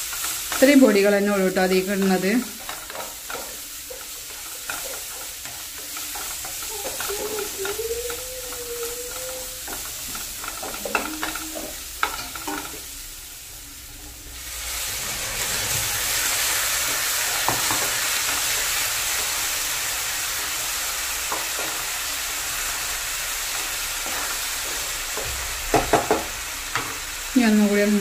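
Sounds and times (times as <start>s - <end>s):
wooden spatula scraping a pan: 0.0s - 12.9s
food frying and sizzling: 0.0s - 28.0s.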